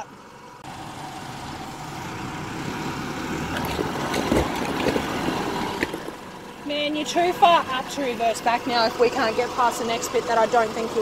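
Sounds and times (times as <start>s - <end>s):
vehicle engine running: 0.0s - 11.0s
tyres crunching over gravel: 2.6s - 9.5s.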